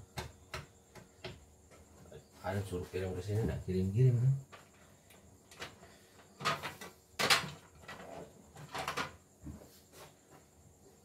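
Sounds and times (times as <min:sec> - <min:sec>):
machine parts knocking and rattling: 0:06.4 - 0:09.2.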